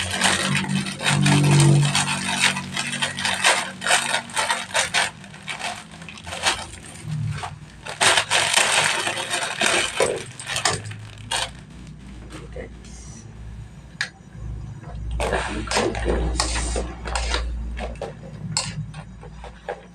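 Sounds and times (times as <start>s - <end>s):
plastic packet crinkling: 0.0s - 12.3s.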